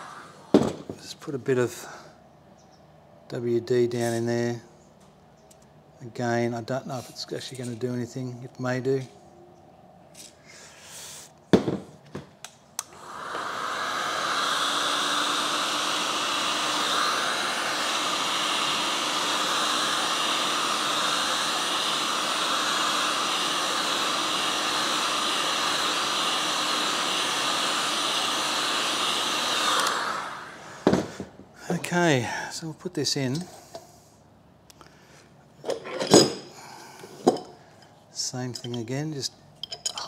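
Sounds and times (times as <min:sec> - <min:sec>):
heat gun blowing: 0:00.0 - 0:01.0, 0:12.8 - 0:31.4.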